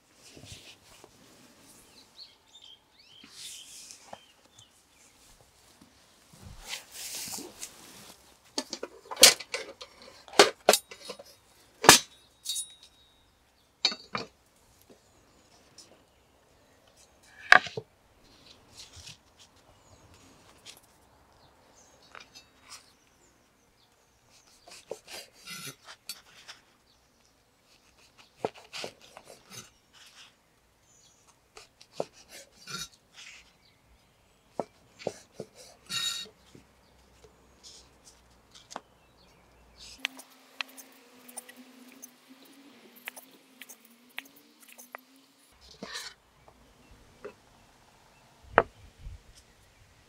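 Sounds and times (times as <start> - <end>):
knife cutting bread crust: 27.9 - 30.2.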